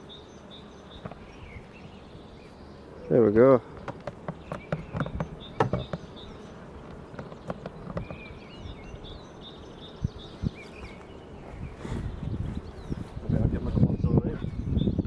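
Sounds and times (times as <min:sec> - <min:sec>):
honeybees buzzing: 0:00.0 - 0:15.0
sharp clicks and knocks: 0:03.7 - 0:06.1, 0:06.8 - 0:08.2.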